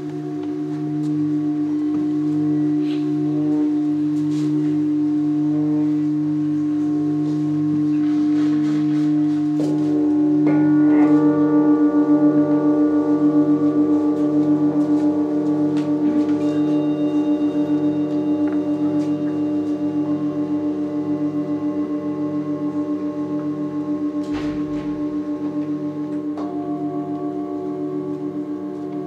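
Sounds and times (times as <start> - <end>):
singing bowls ringing: 0.0 - 29.0.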